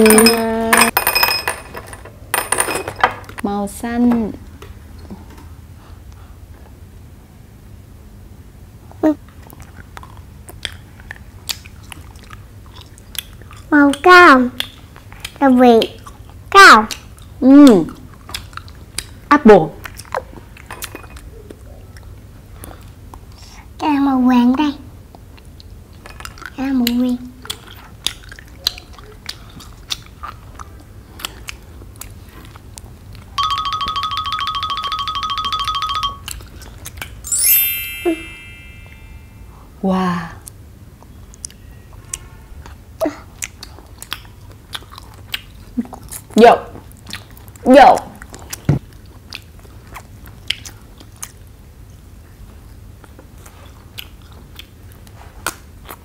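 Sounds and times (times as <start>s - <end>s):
chewing candy: 9.3s - 17.4s, 18.0s - 23.6s, 25.1s - 33.3s, 41.2s - 56.0s
low steady hum: 30.2s - 46.1s.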